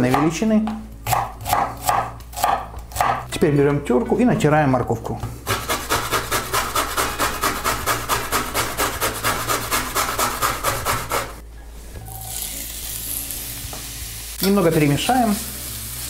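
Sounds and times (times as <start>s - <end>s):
carrot grating on metal grater: 5.5s - 11.4s
vegetables sizzling in hot oil: 12.1s - 16.0s.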